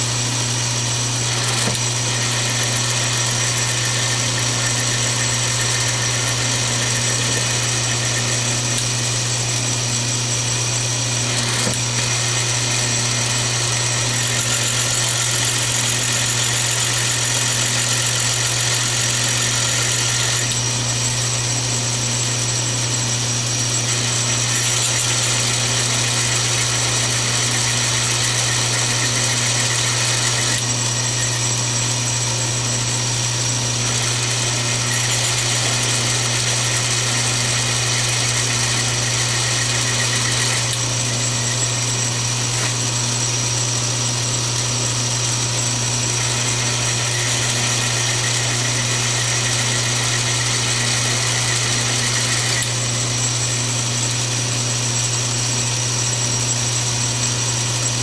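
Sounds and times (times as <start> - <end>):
cutting tool hiss: 0.0 - 21.1, 23.7 - 54.2
lathe motor humming: 0.0 - 54.4.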